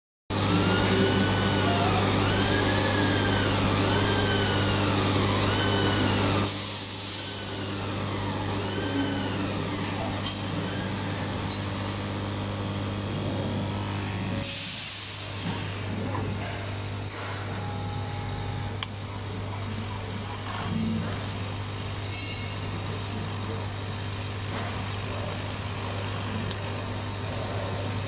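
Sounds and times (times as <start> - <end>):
drive motors whining: 0.3 - 14.5
machine humming: 0.3 - 28.0.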